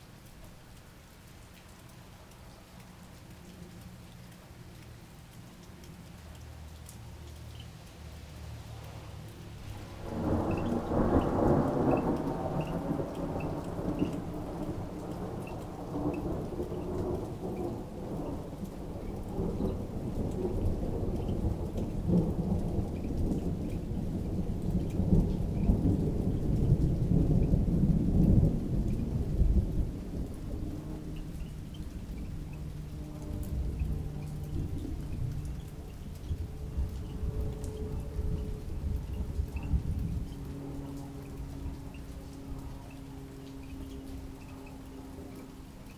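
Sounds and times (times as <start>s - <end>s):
rain: 0.0s - 45.9s
thunder rumbling: 9.6s - 45.6s.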